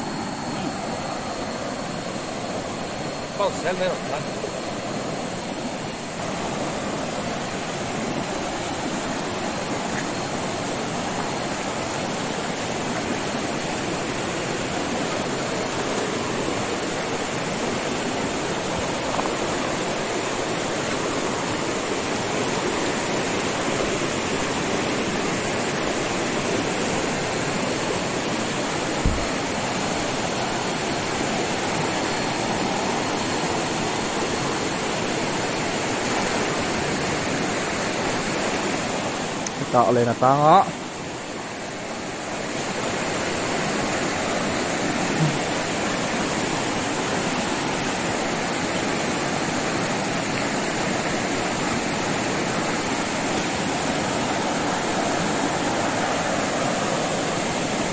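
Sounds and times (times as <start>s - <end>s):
river water rushing over rocks: 0.0s - 57.9s
low thump: 29.0s - 29.3s.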